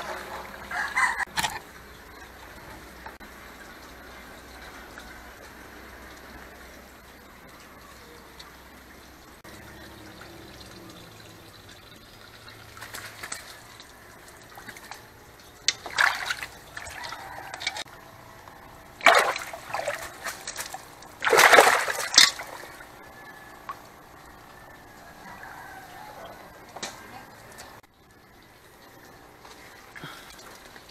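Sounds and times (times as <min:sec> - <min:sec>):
water sloshing and trickling: 0:00.0 - 0:30.9
fish splashing in water: 0:07.7 - 0:27.8.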